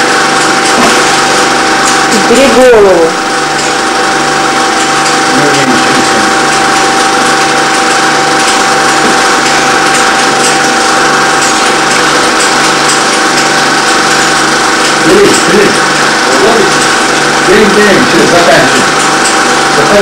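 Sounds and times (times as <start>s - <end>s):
film projector whirring: 0.0s - 20.0s.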